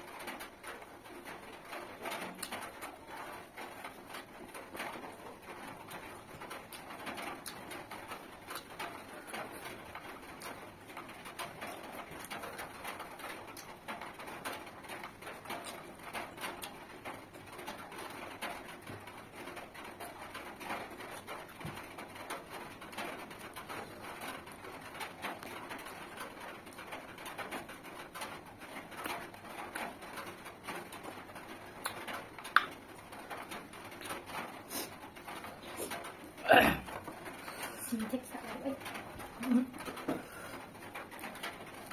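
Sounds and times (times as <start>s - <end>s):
chewing and mouth smacking: 31.8s - 32.8s.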